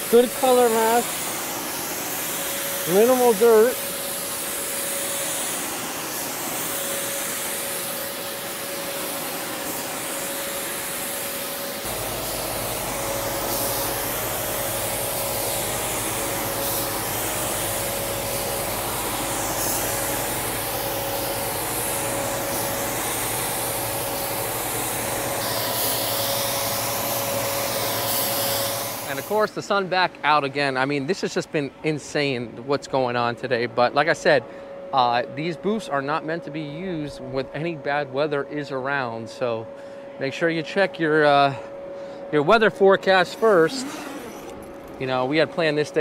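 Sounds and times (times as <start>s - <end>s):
spray gun hissing: 0.0s - 29.6s, 43.0s - 45.2s
blowers whining and rushing: 0.0s - 30.2s, 41.8s - 46.0s.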